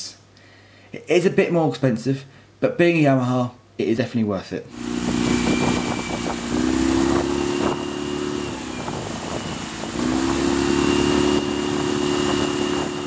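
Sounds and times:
outboard motor running: 4.7 - 13.0
wind: 4.7 - 13.0.

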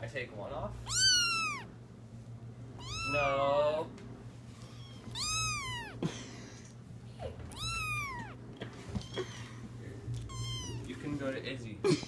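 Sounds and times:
kitten meowing: 0.8 - 1.7, 2.8 - 3.4, 4.7 - 6.0, 7.2 - 8.4, 10.2 - 10.9.

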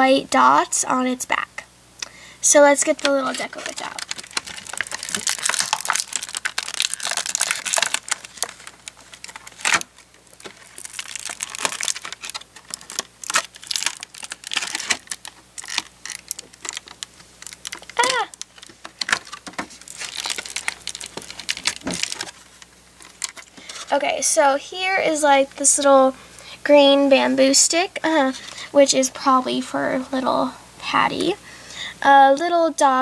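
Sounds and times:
plastic packaging crinkling: 2.6 - 23.9.

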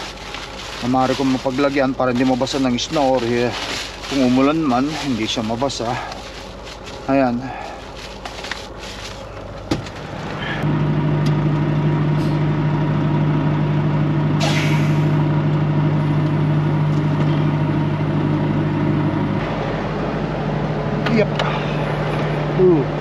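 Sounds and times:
diesel truck engine idling: 0.0 - 23.0
short hiss: 14.4 - 15.1.

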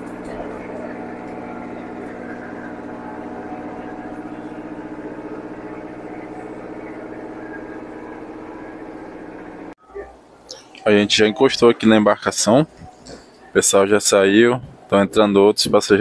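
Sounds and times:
boat engine humming: 0.0 - 9.8.

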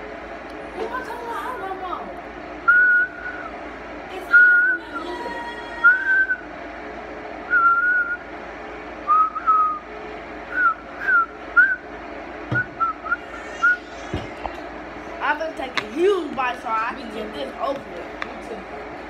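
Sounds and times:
person whistling: 7.5 - 8.2, 9.1 - 9.8, 10.5 - 11.8, 12.6 - 13.8.

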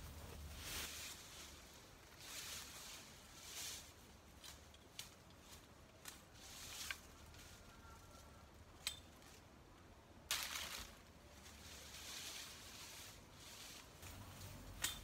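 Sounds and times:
brush rustling: 0.0 - 15.0
branches snapping: 10.2 - 11.1.

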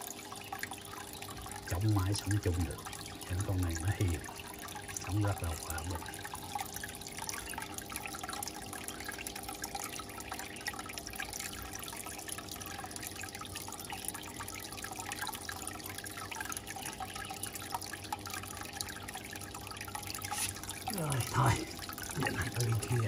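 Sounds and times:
faint steady hum: 0.0 - 23.0
water trickling in fish tank: 0.0 - 23.0.

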